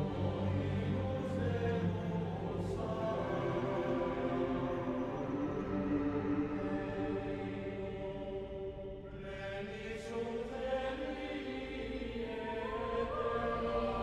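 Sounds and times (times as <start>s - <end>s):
choir-like sung chant: 0.0s - 14.0s.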